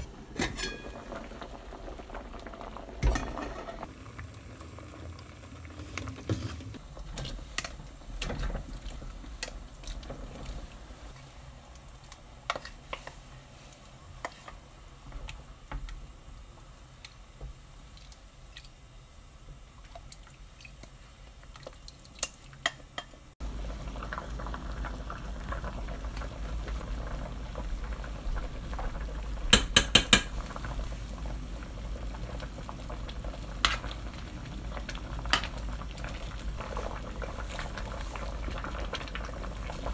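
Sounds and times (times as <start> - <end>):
stew bubbling in a pot: 0.0 - 39.9
spoon tapping a pot: 29.5 - 30.4.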